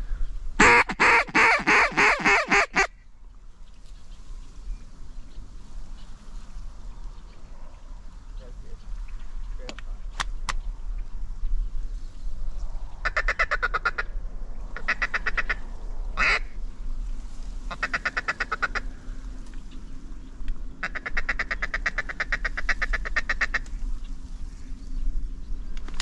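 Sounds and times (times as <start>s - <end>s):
duck call feeding chuckles: 0.6s - 2.9s
duck call quack: 0.6s - 2.9s, 14.8s - 15.6s, 16.2s - 16.5s, 17.8s - 18.8s, 20.8s - 23.6s.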